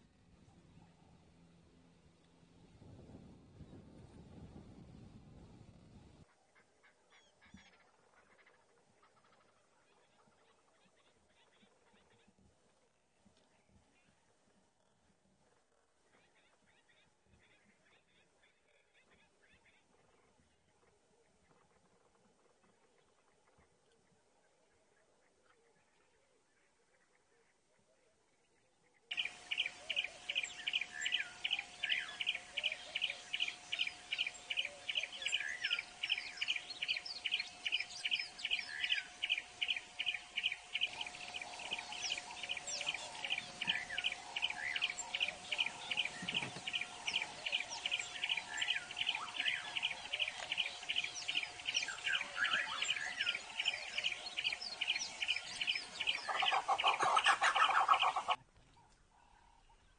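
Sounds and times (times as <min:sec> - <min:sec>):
faint steady tone: 0:19.9 - 0:56.8
loud bird call: 0:29.1 - 0:58.4
other birds chirping: 0:29.1 - 0:59.9.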